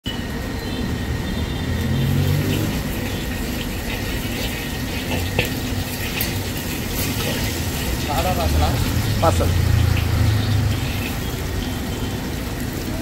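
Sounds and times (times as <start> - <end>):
hot oil sizzling in a wok: 0.1 - 13.0
metal ladle scraping a pan: 2.5 - 11.8.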